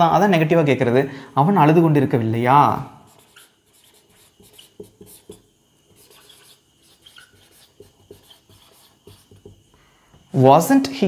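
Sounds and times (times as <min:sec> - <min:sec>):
marker squeaking on whiteboard: 0:03.0 - 0:09.7.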